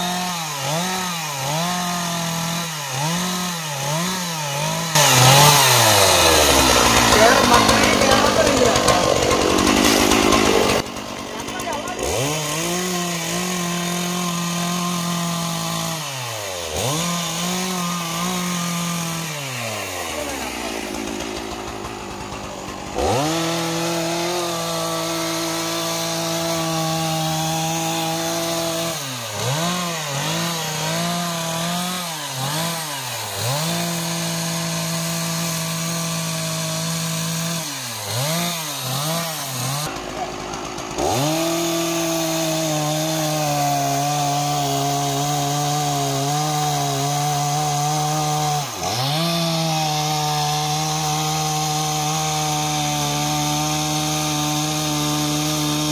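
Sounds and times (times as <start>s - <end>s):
chainsaw cutting wood: 0.0s - 55.9s.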